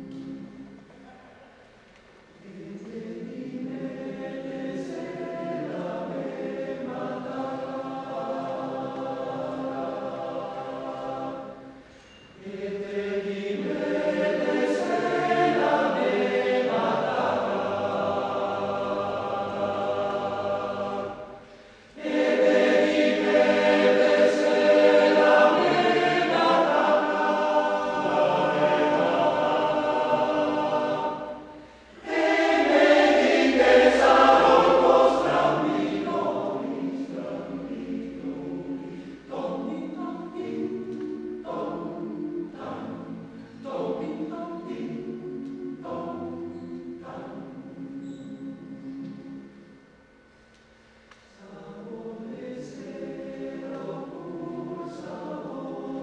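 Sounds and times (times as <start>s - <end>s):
male choir singing a cappella: 2.4s - 49.7s, 51.3s - 56.0s.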